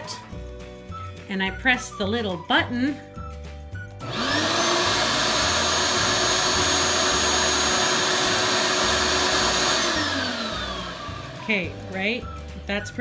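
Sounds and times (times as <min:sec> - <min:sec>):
scroll saw running: 0:04.0 - 0:11.5
aquarium air pump: 0:04.0 - 0:11.6
shop vac whine: 0:04.0 - 0:11.7.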